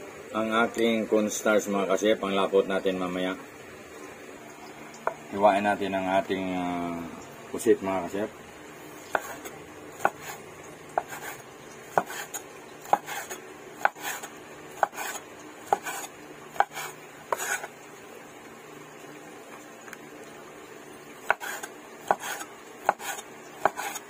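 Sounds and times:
soft knife scuff: 0:12.0 - 0:17.7.

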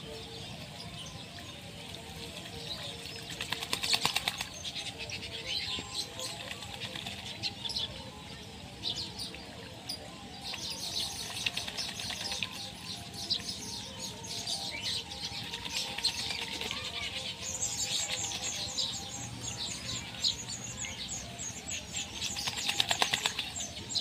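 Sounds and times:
wings beating on water: 0:03.2 - 0:04.8, 0:11.2 - 0:12.6, 0:22.2 - 0:23.6.

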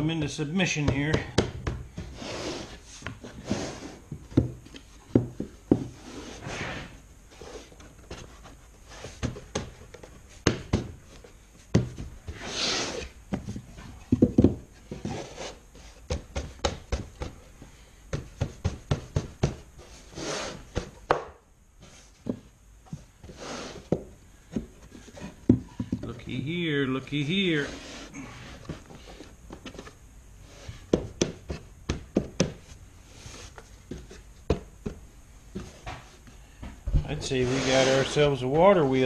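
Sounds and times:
heavy breathing: 0:27.6 - 0:29.4.

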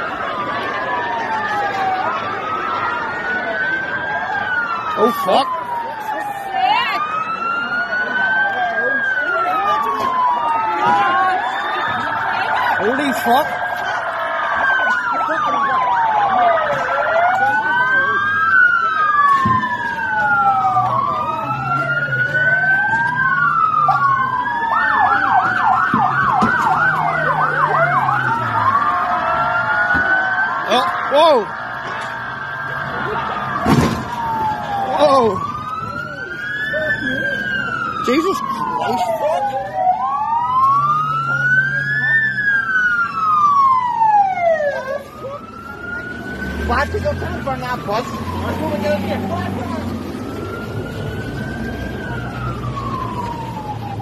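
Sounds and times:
police sirens wailing: 0:00.0 - 0:54.0.

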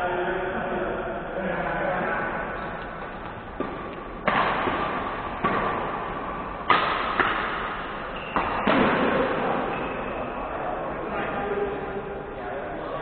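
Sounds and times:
rackets hitting shuttlecock: 0:02.6 - 0:10.0.

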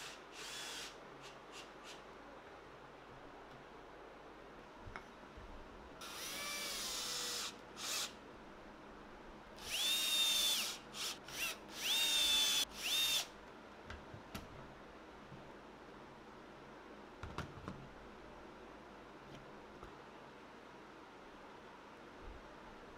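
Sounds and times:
cordless drill motor whine: 0:00.0 - 0:01.0, 0:06.0 - 0:08.1, 0:09.6 - 0:13.3.

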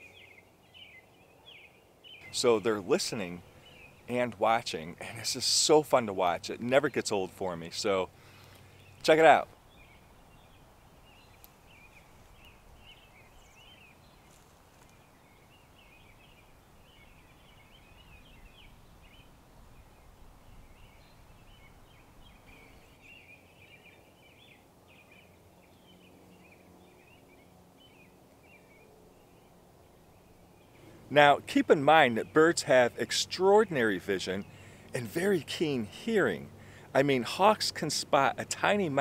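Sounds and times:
distant small birds chirping: 0:00.0 - 0:39.0
soft background hiss: 0:00.0 - 0:39.0.

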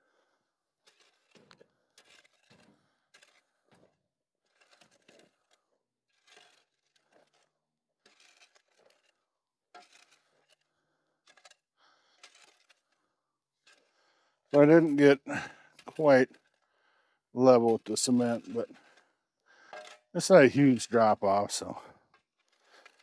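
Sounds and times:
crunching scrapes in gravel: 0:04.5 - 0:09.2.

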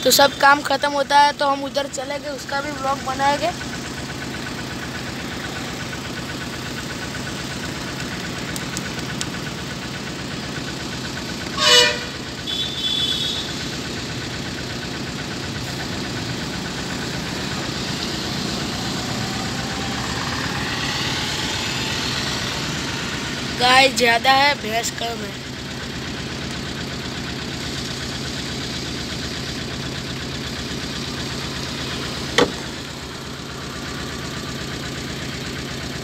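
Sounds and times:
vehicle engine idling: 0:00.0 - 0:36.0
car horn honk: 0:11.5 - 0:13.6.

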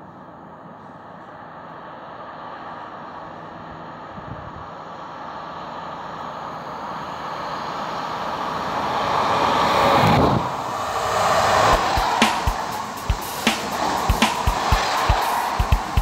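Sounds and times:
passenger train passing: 0:04.8 - 0:16.0.

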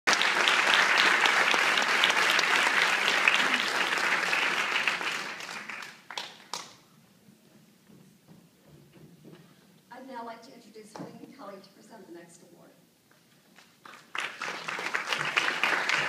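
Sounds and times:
audience applauding: 0:00.1 - 0:06.8, 0:13.6 - 0:16.0.

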